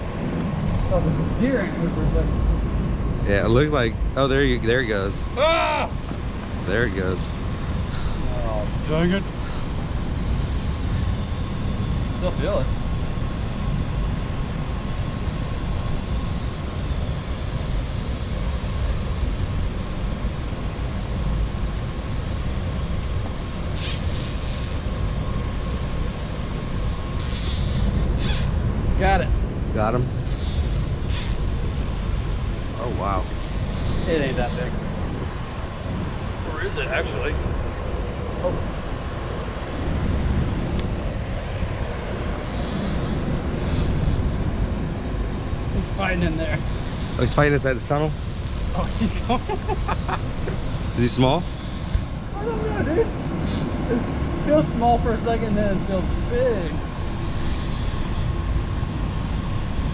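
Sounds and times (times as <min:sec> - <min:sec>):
low rumbling noise: 0:00.0 - 0:59.9.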